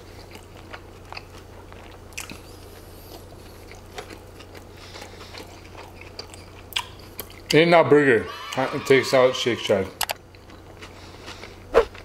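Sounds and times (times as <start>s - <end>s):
person chewing food: 0.0s - 7.5s, 10.1s - 12.0s.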